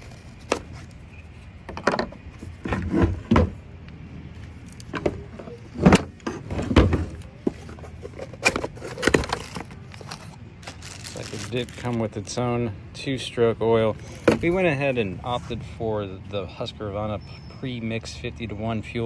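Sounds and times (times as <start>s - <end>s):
scraping and knocks on plastic: 1.7s - 3.6s.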